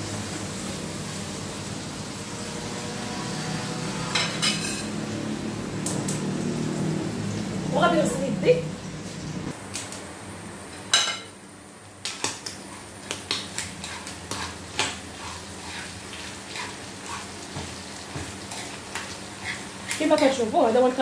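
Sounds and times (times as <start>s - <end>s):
pan sizzling: 0.0s - 2.8s, 10.6s - 21.0s
utensil scraping frying pan: 12.1s - 20.8s.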